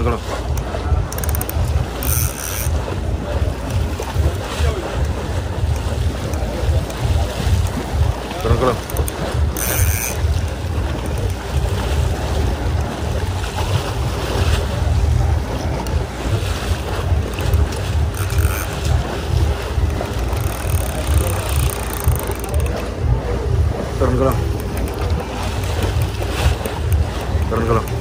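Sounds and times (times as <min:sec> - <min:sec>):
boat noise: 0:00.0 - 0:28.0
water wash: 0:00.0 - 0:28.0
wind buffeting microphone: 0:00.0 - 0:28.0.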